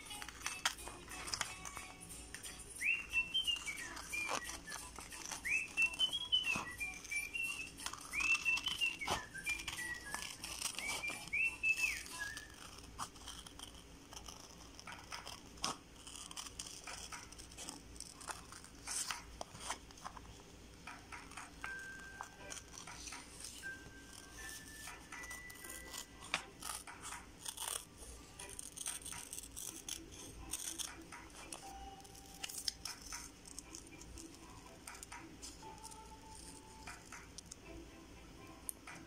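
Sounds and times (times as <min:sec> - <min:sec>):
person whistling a tune: 0:00.0 - 0:13.4, 0:21.2 - 0:26.8
scissors snipping paper: 0:00.0 - 0:37.6.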